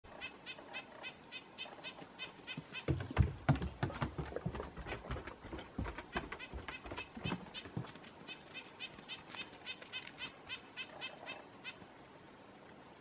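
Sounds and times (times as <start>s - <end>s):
low thumps and knocks: 2.8s - 7.9s.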